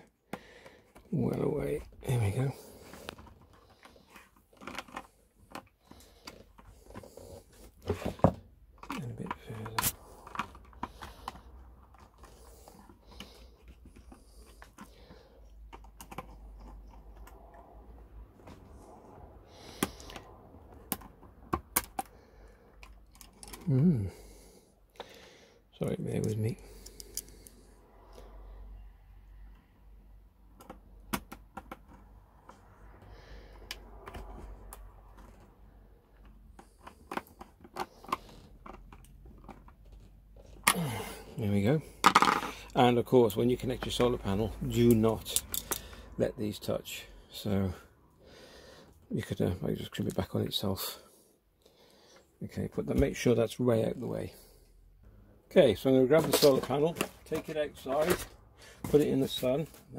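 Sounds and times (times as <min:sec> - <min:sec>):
handling wires and plastic case: 0:00.0 - 0:24.3, 0:30.3 - 0:46.8, 0:55.5 - 0:59.9.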